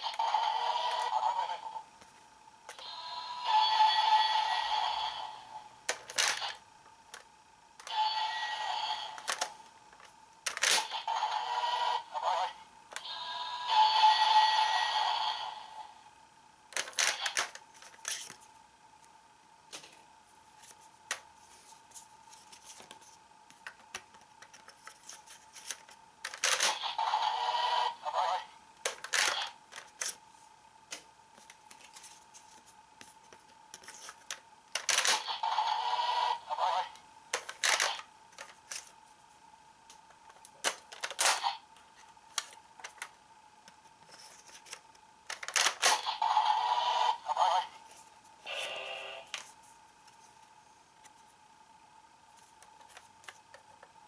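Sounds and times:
electronic toy sound effects: 0.0s - 1.8s, 2.7s - 5.5s, 7.8s - 9.4s, 10.7s - 15.8s, 26.6s - 28.5s, 35.1s - 37.0s, 45.8s - 47.8s, 48.5s - 49.3s.

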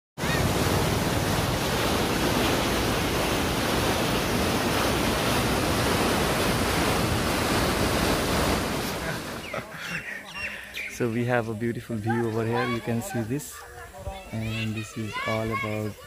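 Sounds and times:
river water rushing below weir: 0.2s - 11.1s.

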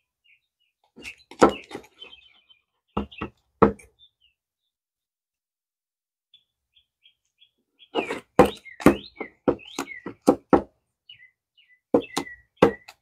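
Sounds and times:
bird chirping: 0.0s - 4.8s, 6.3s - 13.0s.

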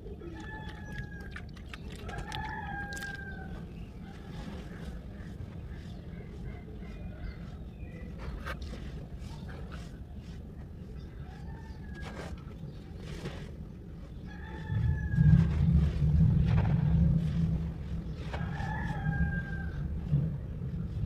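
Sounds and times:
low rumble: 14.7s - 21.0s.

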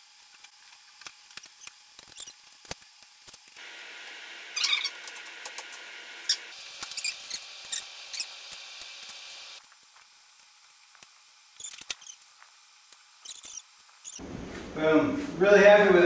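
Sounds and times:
steady hiss: 3.6s - 9.7s.

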